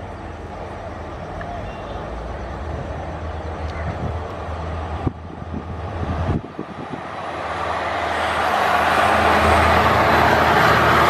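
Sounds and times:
diesel locomotive engine drone: 0:00.0 - 0:11.0.

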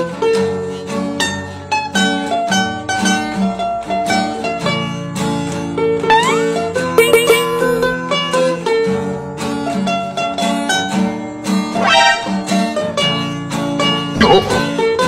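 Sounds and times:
plucked string music: 0:05.9 - 0:08.6, 0:11.5 - 0:15.0.

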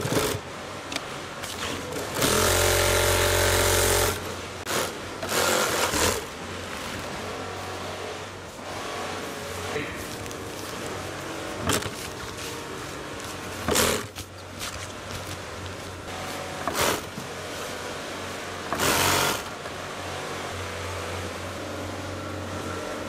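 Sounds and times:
low workroom hum: 0:00.0 - 0:23.0
industrial sewing machine bursts: 0:01.8 - 0:06.3, 0:18.7 - 0:19.6
fabric being handled: 0:05.7 - 0:18.4.

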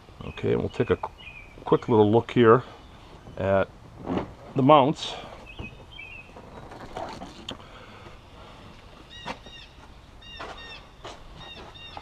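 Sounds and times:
handling clicks and rustles: 0:03.9 - 0:08.2
bird calling: 0:05.1 - 0:12.0.

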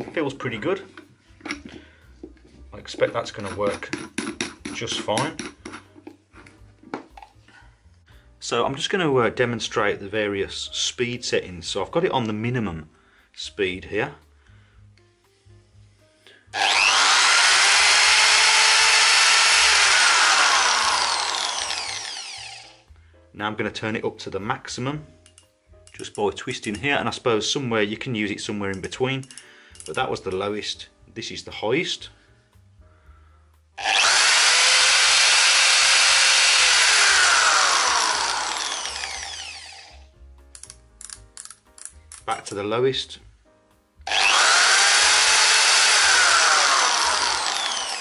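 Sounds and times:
hammer drill running free: 0:16.6 - 0:22.8, 0:33.8 - 0:40.0, 0:44.1 - 0:48.0.

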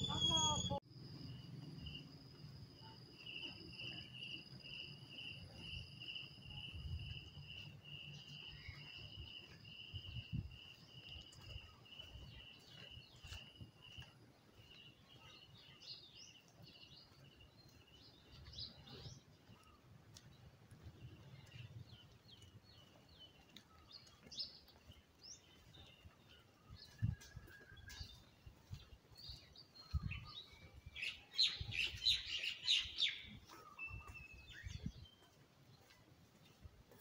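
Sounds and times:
insect trill: 0:00.0 - 0:09.2
repeated high insect chirp: 0:00.0 - 0:14.9
bird chirps: 0:00.0 - 0:36.0.

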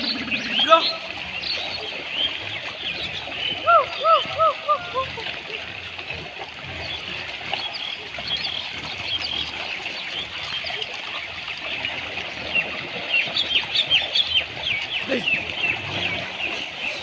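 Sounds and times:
small birds chirping: 0:00.0 - 0:04.7
trickling stream water: 0:00.0 - 0:17.0.

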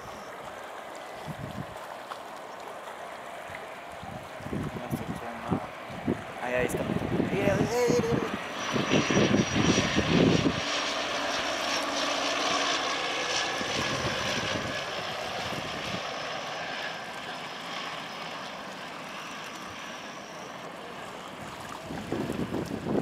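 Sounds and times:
thin high whine: 0:00.0 - 0:00.4, 0:06.4 - 0:21.2
propeller plane engine: 0:00.0 - 0:23.0.

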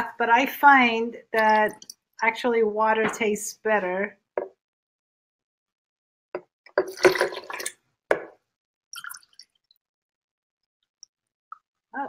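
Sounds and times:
water dripping: 0:01.3 - 0:02.4, 0:06.8 - 0:08.3, 0:09.0 - 0:09.8
water pouring and splashing: 0:06.8 - 0:07.8, 0:09.0 - 0:09.8.

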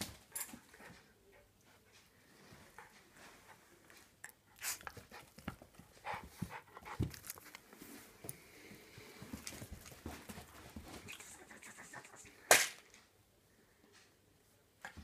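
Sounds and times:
dog panting: 0:00.5 - 0:07.2.

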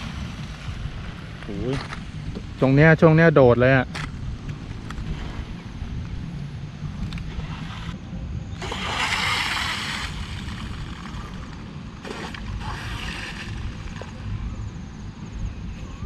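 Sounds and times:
wind rumbling on microphone: 0:00.0 - 0:16.0
hissing water splash: 0:08.6 - 0:14.2.

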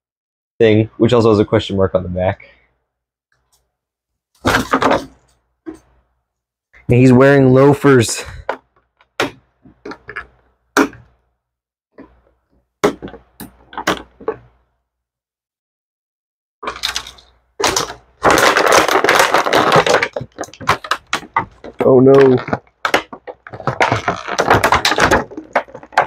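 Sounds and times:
plastic tray crinkling: 0:16.7 - 0:26.0.

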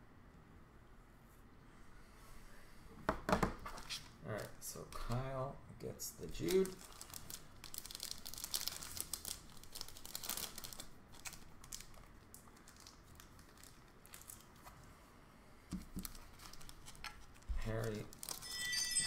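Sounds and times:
plastic card sleeve crinkling: 0:06.2 - 0:14.8, 0:15.7 - 0:18.5.

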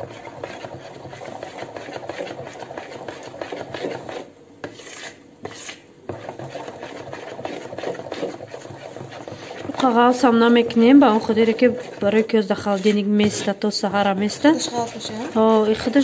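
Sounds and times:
batter stirred in plastic bowl: 0:00.0 - 0:16.0.

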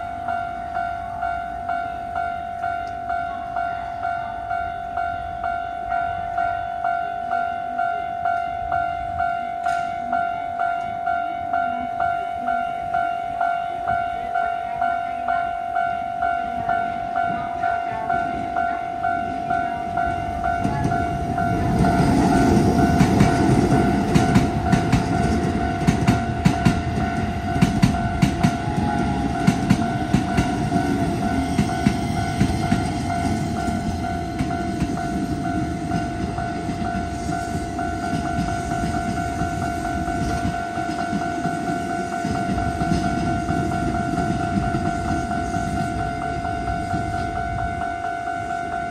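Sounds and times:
level-crossing bell dinging: 0:00.0 - 0:48.9
train rumble: 0:00.0 - 0:48.9
wheels clacking over rail joints: 0:19.3 - 0:47.3.

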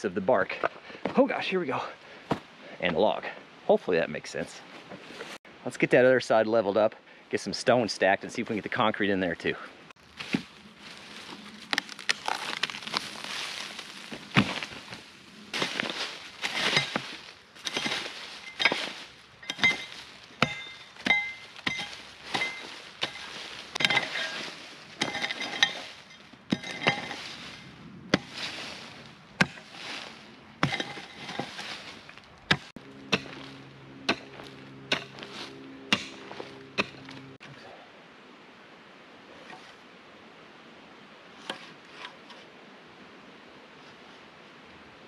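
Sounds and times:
low steady hum: 0:07.0 - 0:41.3
mattock striking rocky soil: 0:10.0 - 0:37.4.

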